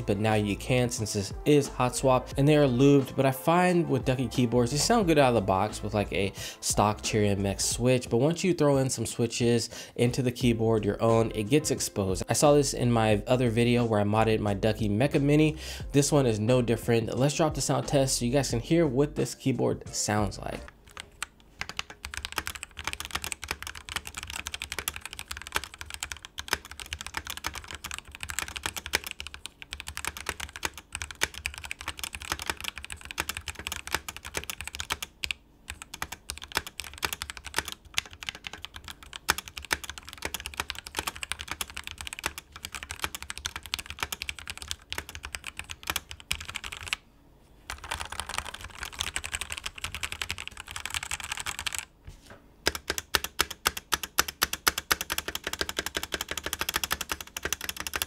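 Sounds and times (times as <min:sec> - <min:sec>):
fast keyboard typing: 0:20.6 - 0:47.0, 0:47.7 - 0:51.9, 0:52.6 - 0:58.0.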